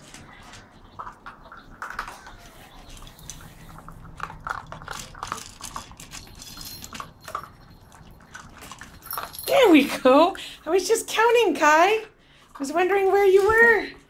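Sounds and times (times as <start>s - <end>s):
puppies crunching dry kibble: 0.0s - 14.0s.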